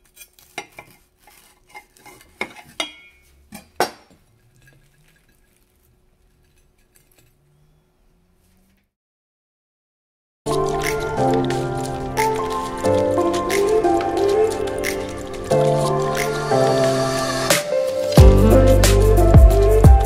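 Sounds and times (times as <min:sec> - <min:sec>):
faint rustling and handling: 0:00.0 - 0:08.9
ceramic plate clinking: 0:01.8 - 0:05.3.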